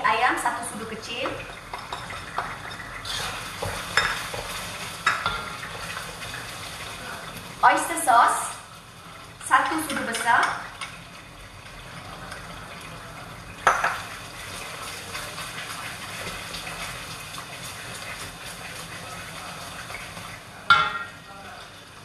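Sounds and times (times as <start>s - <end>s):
steady sizzling hiss: 0.0s - 22.0s
spatula scraping metal wok: 3.0s - 4.7s
spatula knock on wok: 20.7s - 21.1s.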